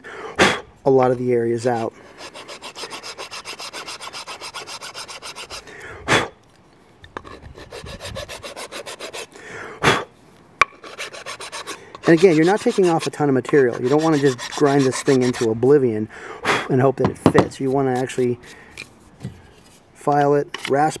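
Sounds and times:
hand file scraping wood: 1.0 - 5.7, 7.2 - 9.3, 10.8 - 15.6, 17.5 - 18.6.

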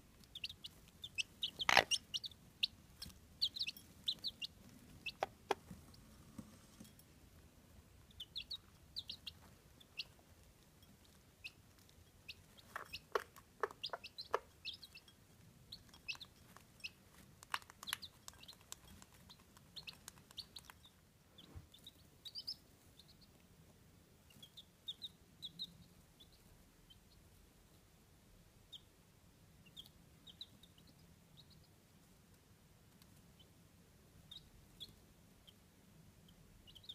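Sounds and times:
hen clucking: 0.0 - 6.0, 11.1 - 15.1
chicks peeping: 0.0 - 6.8, 7.8 - 27.9, 28.6 - 36.9.

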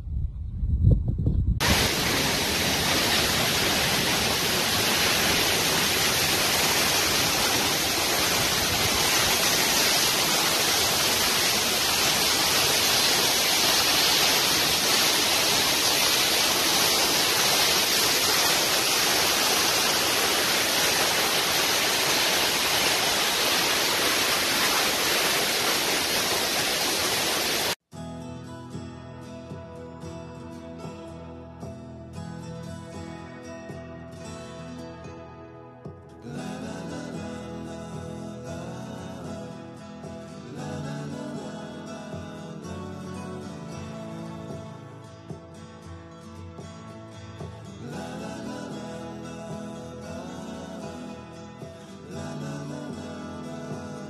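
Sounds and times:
waterfall rushing: 1.6 - 27.8.

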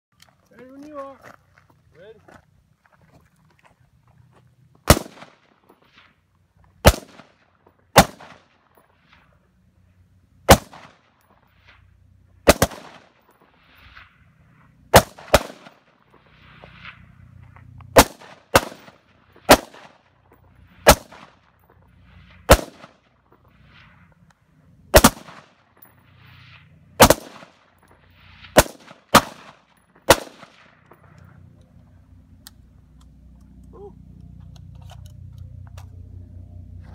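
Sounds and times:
rifles firing single shots: 4.8 - 6.0, 6.8 - 8.8, 10.4 - 11.4, 12.4 - 13.4, 14.9 - 16.0, 17.9 - 20.2, 20.8 - 21.5, 22.4 - 23.1, 24.9 - 25.8, 27.0 - 30.8.

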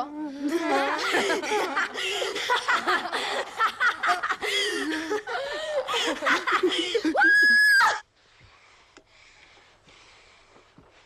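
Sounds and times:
young women laughing and giggling: 0.4 - 7.9.

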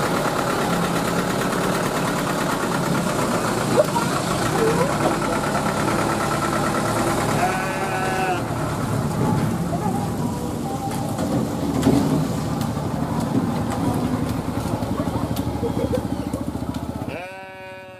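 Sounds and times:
pickup truck engine running: 0.0 - 17.4
sheep bleating: 7.4 - 8.5, 17.1 - 17.9.

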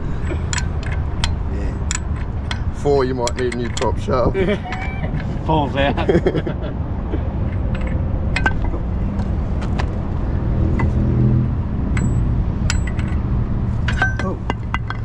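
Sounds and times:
steady low rumble: 0.0 - 15.0
metallic clinks of wrench: 11.9 - 13.2.

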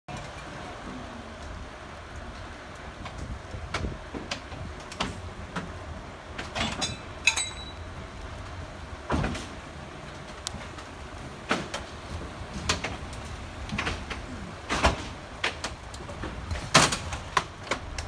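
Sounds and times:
knocks and clanks: 3.0 - 7.8, 9.0 - 18.0.

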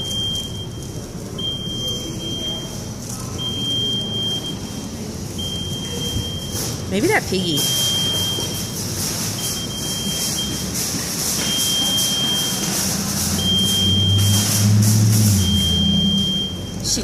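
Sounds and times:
high-pitched electronic beep: 13.3 - 14.6, 15.3 - 17.0.

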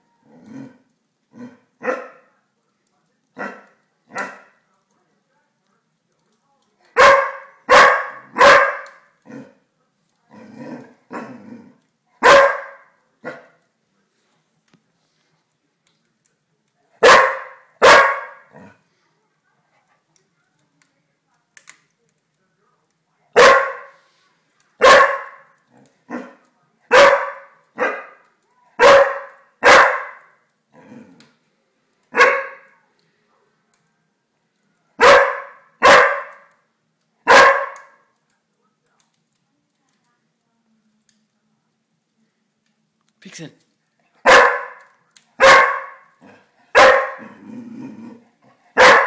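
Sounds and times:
dog barking: 1.8 - 2.3, 3.4 - 4.6, 6.9 - 9.0, 12.2 - 13.6, 17.0 - 18.5, 23.3 - 24.0, 24.8 - 25.5, 26.1 - 28.2, 28.8 - 30.4, 32.1 - 32.7, 35.0 - 36.5, 37.2 - 38.0, 44.2 - 47.4, 48.7 - 49.0.

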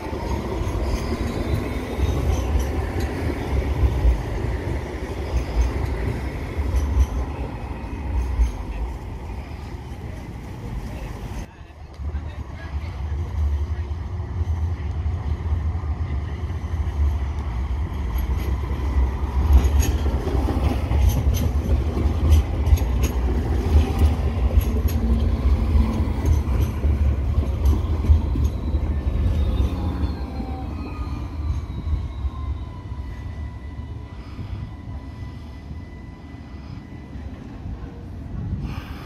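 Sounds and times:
tram wheels rumbling: 0.0 - 39.0.

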